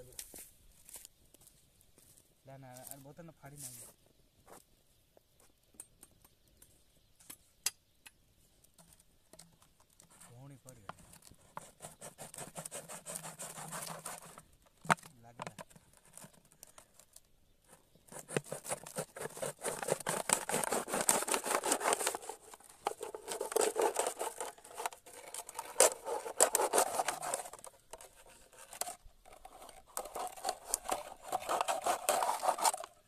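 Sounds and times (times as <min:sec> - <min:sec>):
machete sawing plastic bottle: 0:11.0 - 0:16.4, 0:18.0 - 0:33.0.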